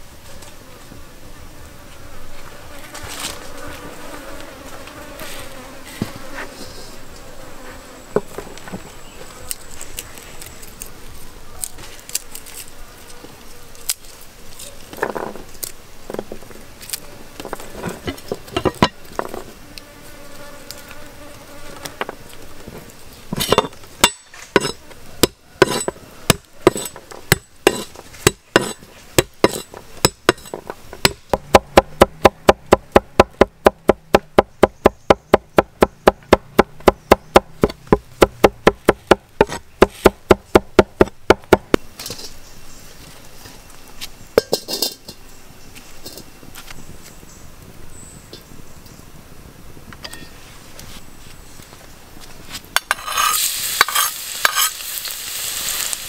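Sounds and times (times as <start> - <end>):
flies buzzing: 0.0 - 47.6
cleaver chopping on wooden board: 24.0 - 41.8.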